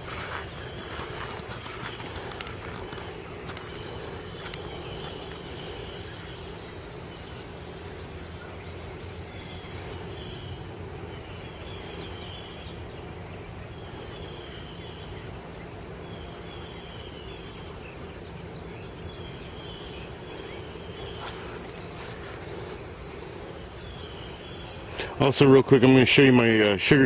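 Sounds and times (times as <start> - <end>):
low drone: 0.0 - 26.0.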